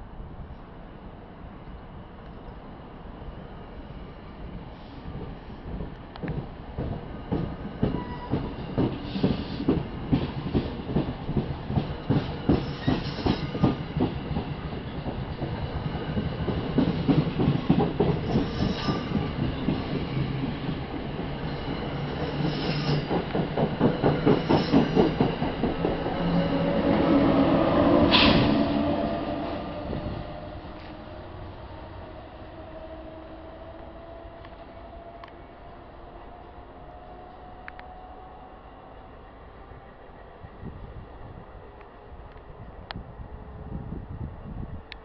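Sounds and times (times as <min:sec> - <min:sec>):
electric locomotive humming: 0:00.9 - 0:44.9
train wheels clicking over rail joints: 0:05.2 - 0:26.6
high wheel squeals: 0:21.8 - 0:23.1.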